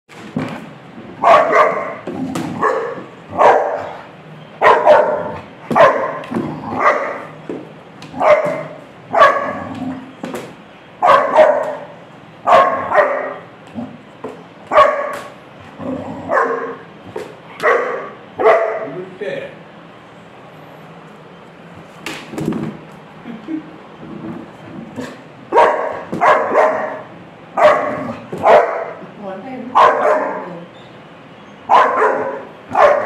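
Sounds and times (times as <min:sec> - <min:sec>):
puppy barking: 0:01.2 - 0:07.4, 0:08.1 - 0:09.8, 0:11.0 - 0:13.6, 0:14.7 - 0:15.4, 0:16.3 - 0:16.9, 0:17.5 - 0:19.0, 0:25.0 - 0:29.0, 0:29.7 - 0:30.7, 0:31.6 - 0:33.0.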